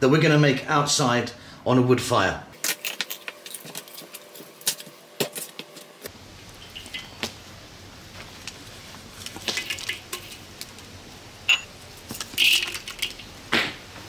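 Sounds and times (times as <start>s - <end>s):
spices sizzling in hot oil: 6.0s - 14.0s
pieces clicking on pan: 9.2s - 10.7s, 12.1s - 13.4s.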